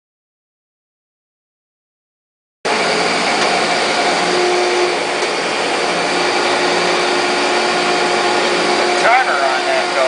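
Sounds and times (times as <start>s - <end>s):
grinder whirring: 2.7s - 10.0s.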